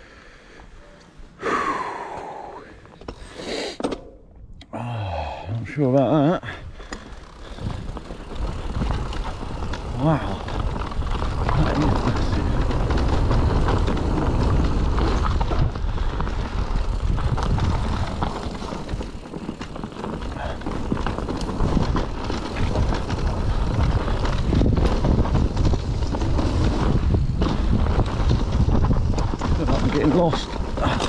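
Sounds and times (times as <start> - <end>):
tyres rumbling on dirt: 5.7 - 31.0
wind buffeting microphone: 6.6 - 31.0
bike knocks and rattles: 6.9 - 31.0.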